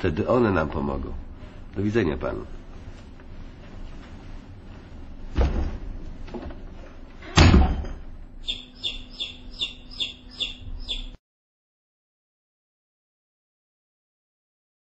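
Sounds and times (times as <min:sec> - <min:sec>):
door slamming: 0:07.3 - 0:08.0
high chirps: 0:08.4 - 0:11.2.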